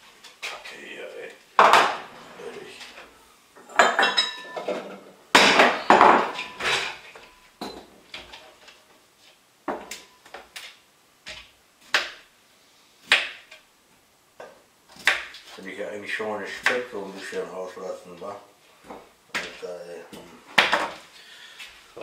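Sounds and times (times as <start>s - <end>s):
utensils and dishes clanking: 3.6s - 7.9s.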